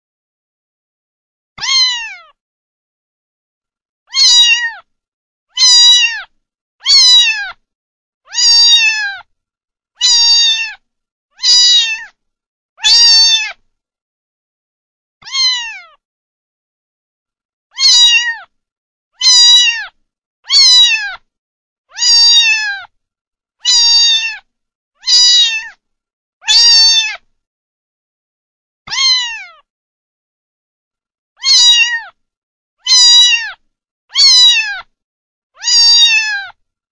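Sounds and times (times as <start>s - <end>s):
kitten meowing: 1.6s - 2.4s, 4.1s - 4.9s, 5.6s - 7.6s, 8.3s - 9.3s, 10.0s - 10.8s, 11.4s - 12.2s, 12.8s - 13.6s, 15.2s - 16.0s, 17.7s - 18.5s, 19.2s - 21.2s, 21.9s - 22.9s, 23.6s - 25.8s, 26.4s - 27.3s, 28.9s - 29.6s, 31.4s - 32.2s, 32.8s - 34.9s, 35.6s - 36.6s.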